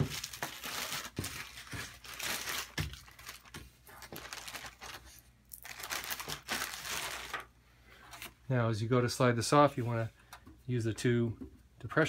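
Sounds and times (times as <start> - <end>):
plastic bags crinkling: 0.0 - 7.5.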